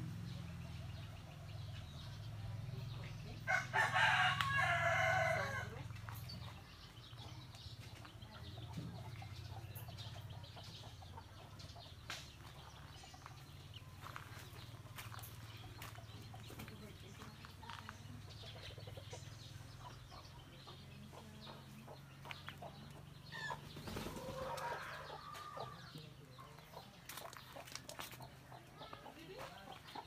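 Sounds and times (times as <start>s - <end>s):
rooster crowing: 3.5s - 5.7s.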